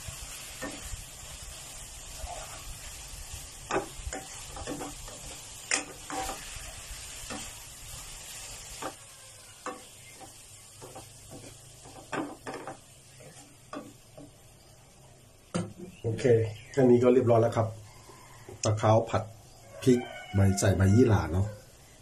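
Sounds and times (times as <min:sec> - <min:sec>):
spatula scraping a wok: 0:00.0 - 0:14.6
food sizzling: 0:00.0 - 0:22.0.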